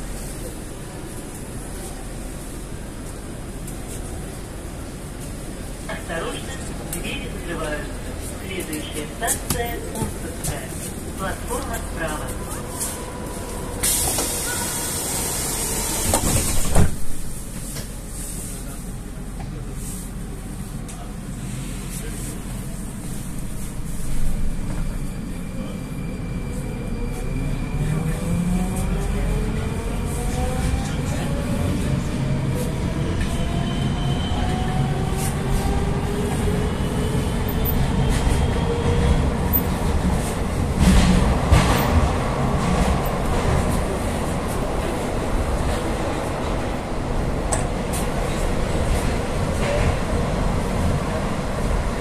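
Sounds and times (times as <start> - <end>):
train car low rumble: 0.0 - 52.0
train doors sliding shut with hiss: 13.8 - 18.0
train running gear rumble: 34.3 - 52.0.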